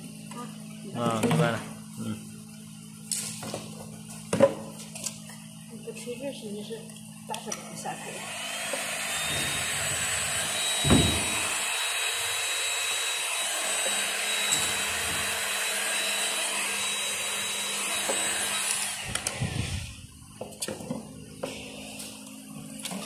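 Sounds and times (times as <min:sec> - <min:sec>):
heat gun blowing: 0:08.0 - 0:20.1
thump: 0:10.8 - 0:11.3.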